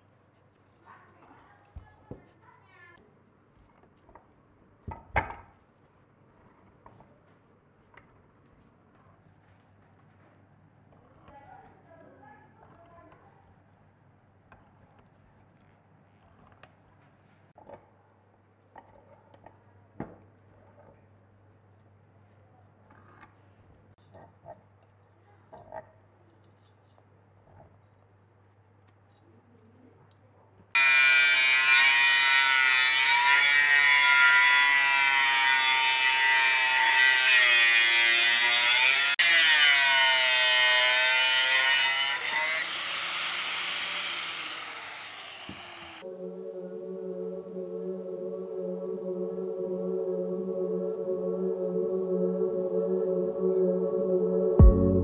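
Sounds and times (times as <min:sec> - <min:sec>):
angle grinder cutting steel: 0:30.8 - 0:46.0
low steady hum: 0:46.0 - 0:55.0.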